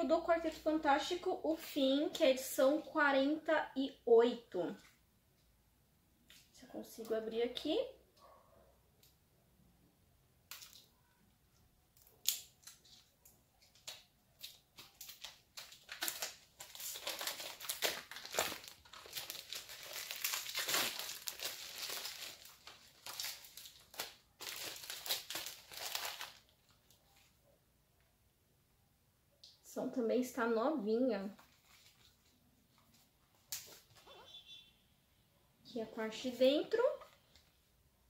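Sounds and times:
plastic wrapping crinkling and tearing: 12.0 - 27.3, 31.4 - 34.0.

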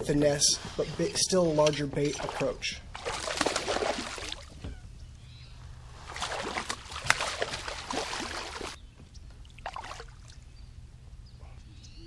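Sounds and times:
water splashing from thrashing fish: 2.2 - 4.6, 6.0 - 8.8, 9.6 - 10.4.

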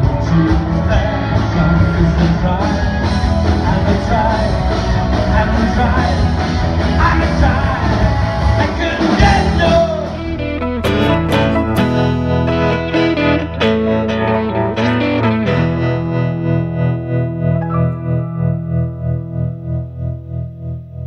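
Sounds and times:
person singing: 0.0 - 12.2
live rock band playing: 0.0 - 21.0.

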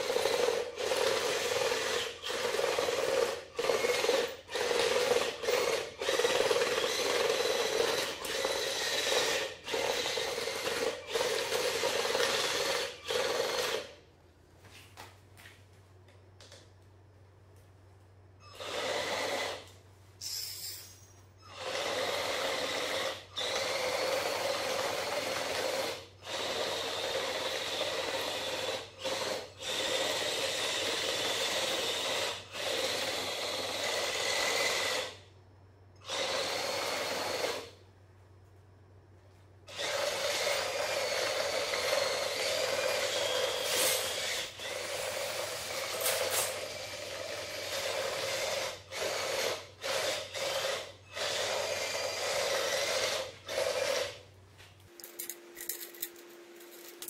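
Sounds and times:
electric motors driving tank tracks: 0.0 - 14.0, 21.4 - 35.2, 39.7 - 54.2.

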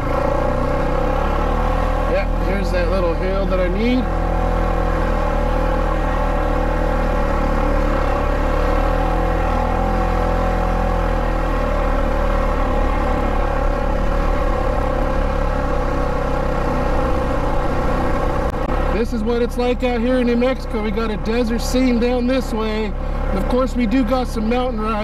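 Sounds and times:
atv engine running: 0.0 - 25.0.

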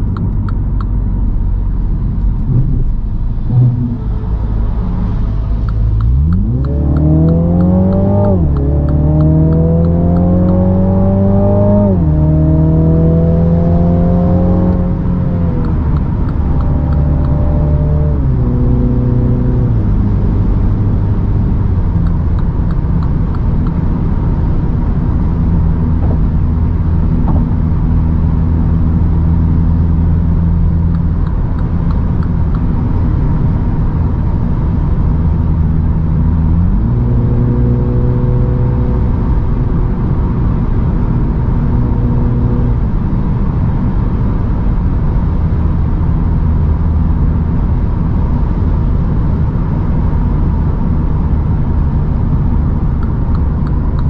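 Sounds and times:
car engine cruising: 0.0 - 54.0
tyre and road noise: 0.0 - 54.0.

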